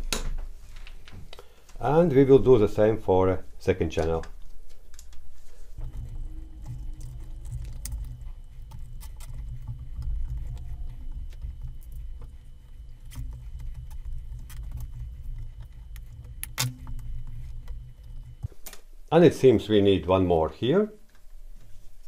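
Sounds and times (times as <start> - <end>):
low handling rumble: 5.6 - 20.0.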